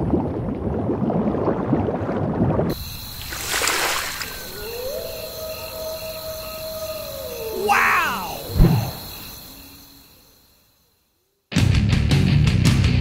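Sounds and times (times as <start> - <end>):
bubbling and gurgling water: 0.0 - 4.5
whoosh: 8.5 - 9.2.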